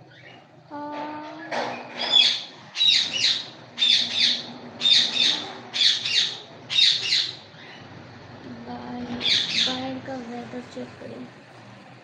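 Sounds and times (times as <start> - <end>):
parakeet squawking: 1.4 - 7.9, 9.0 - 10.0.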